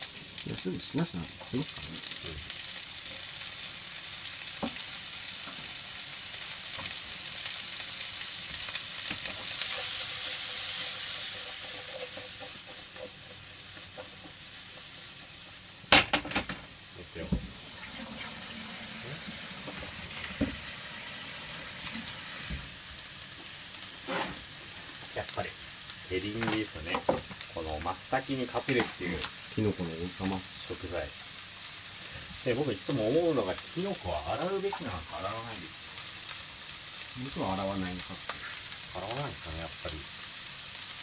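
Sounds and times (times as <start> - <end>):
asparagus sizzling in oil: 0.0 - 41.0
pan knocking against stove: 15.9 - 16.6.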